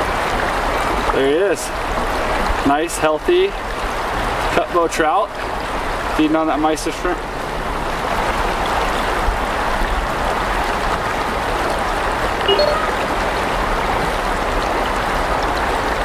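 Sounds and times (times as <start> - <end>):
river water rushing: 3.6 - 16.0.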